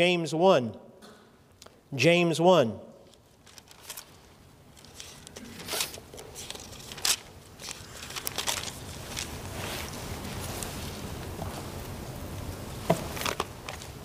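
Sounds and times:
thin pages rustling and flicking: 0:03.2 - 0:11.9, 0:12.9 - 0:14.0.

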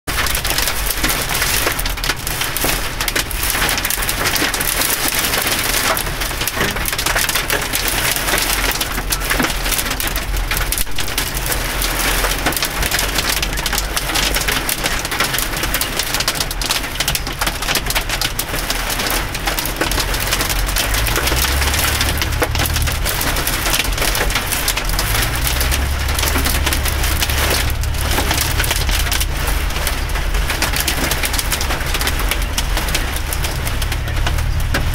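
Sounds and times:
hail and rain on a car roof: 0:00.1 - 0:34.9
low rumble: 0:19.8 - 0:34.9.

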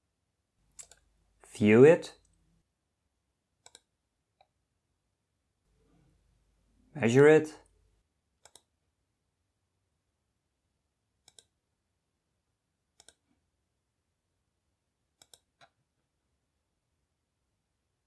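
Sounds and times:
computer mouse clicks: 0:00.7 - 0:01.1, 0:03.6 - 0:04.6, 0:08.4 - 0:08.7, 0:11.2 - 0:11.6, 0:13.0 - 0:13.3, 0:15.2 - 0:15.8.

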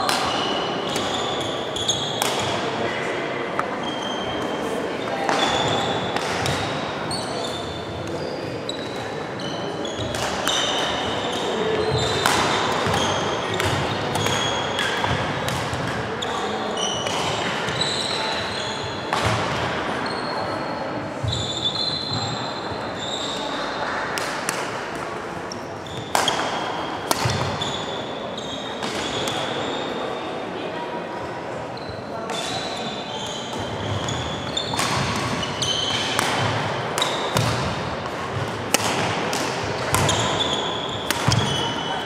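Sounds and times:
racket striking shuttlecock: 0:12.0 - 0:16.0, 0:26.1 - 0:27.6, 0:34.7 - 0:41.6.

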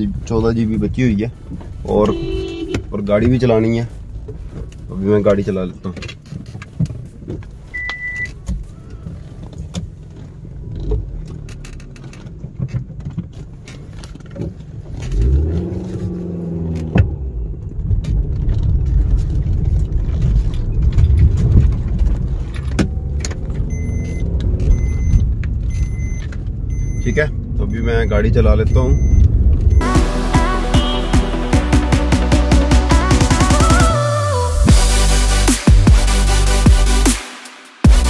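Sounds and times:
short electronic beeps: 0:07.8 - 0:08.3, 0:23.7 - 0:27.4, 0:28.0 - 0:29.9
car engine running: 0:08.8 - 0:38.0.

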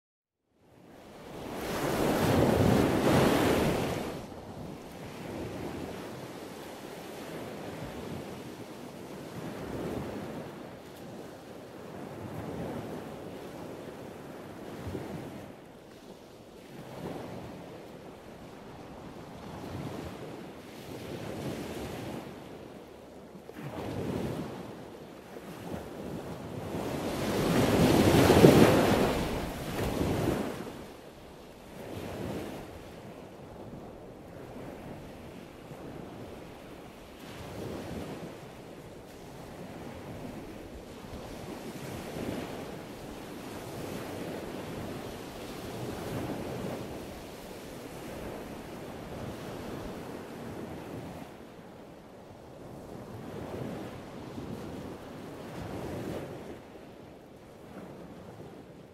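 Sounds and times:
ocean surf washing: 0:01.1 - 0:16.0, 0:25.4 - 0:51.6.

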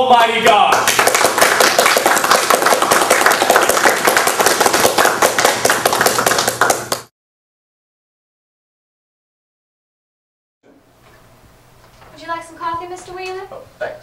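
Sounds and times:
crowd applauding: 0:00.7 - 0:07.1.

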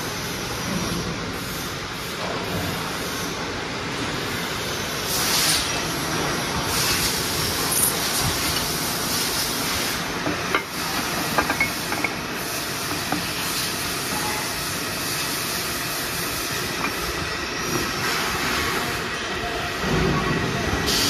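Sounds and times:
machine hissing: 0:04.2 - 0:21.0.

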